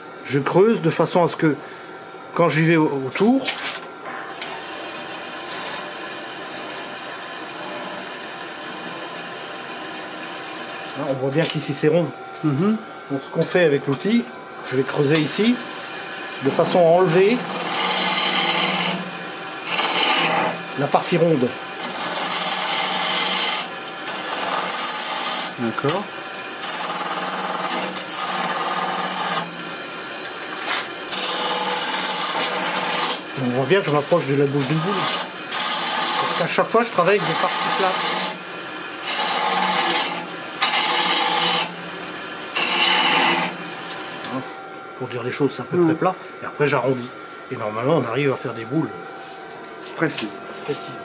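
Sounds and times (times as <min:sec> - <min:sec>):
wood lathe running: 0:04.0 - 0:44.6.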